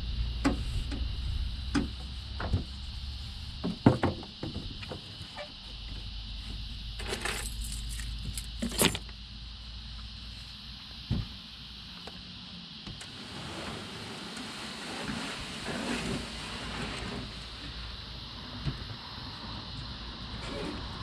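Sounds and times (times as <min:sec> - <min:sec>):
low hum: 0:00.0 - 0:03.6.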